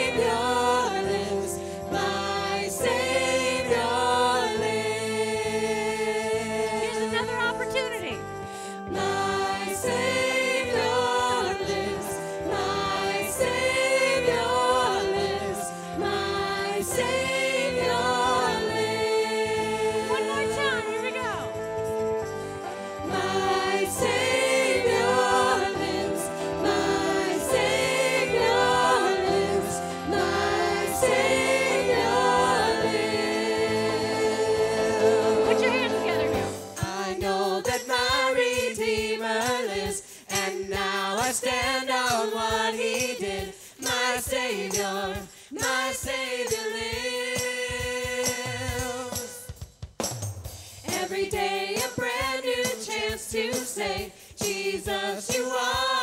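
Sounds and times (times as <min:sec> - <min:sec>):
group singing praise song: 0:00.0 - 0:08.1, 0:08.8 - 0:21.4, 0:22.8 - 0:49.6, 0:50.8 - 0:56.0
instrumental accompaniment: 0:00.0 - 0:38.2.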